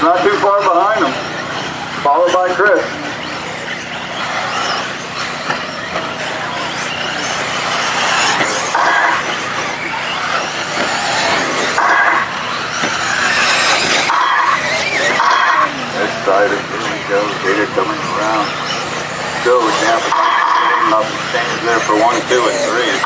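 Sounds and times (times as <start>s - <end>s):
electric motors whining: 0.0s - 23.0s
tyres scrabbling on dirt: 0.0s - 23.0s.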